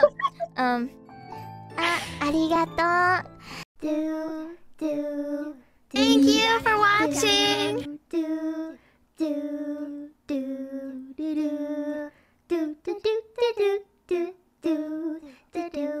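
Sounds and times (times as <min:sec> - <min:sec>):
woman singing: 0:03.8 - 0:16.0.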